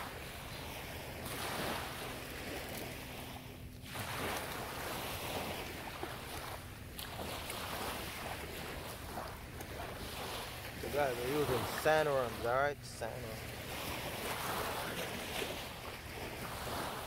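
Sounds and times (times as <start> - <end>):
small waves washing on shore: 0.0 - 17.0.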